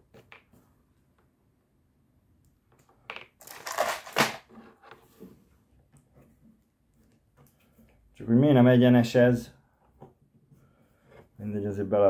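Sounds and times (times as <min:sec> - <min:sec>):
plastic packaging crinkling: 0:03.4 - 0:04.5.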